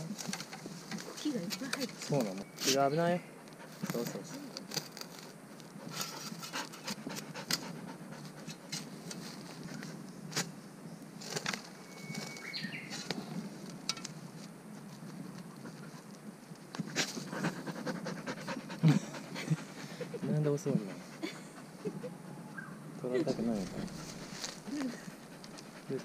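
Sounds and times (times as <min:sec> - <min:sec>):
dry leaves crackling and scraping: 0:03.8 - 0:06.8, 0:11.2 - 0:15.8, 0:23.3 - 0:26.0
dog panting: 0:05.8 - 0:08.7, 0:16.8 - 0:22.3, 0:23.3 - 0:26.0.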